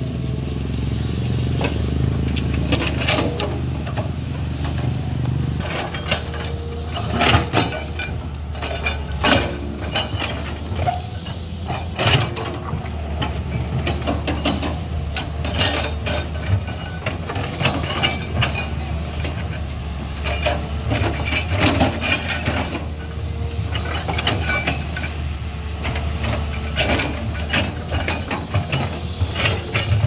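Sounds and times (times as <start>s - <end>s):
excavator diesel engine running: 0.0s - 30.0s
machine clanks and knocks: 1.6s - 30.0s.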